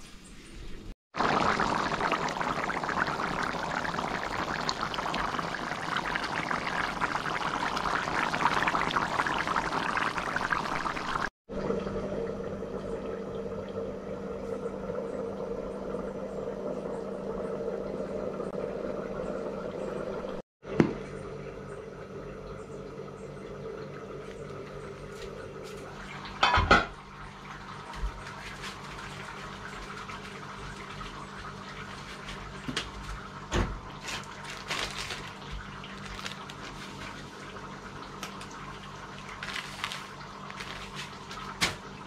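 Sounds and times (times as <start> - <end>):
stew bubbling in a pan: 1.1 - 12.2, 23.6 - 42.0
steady low hum: 11.5 - 20.4.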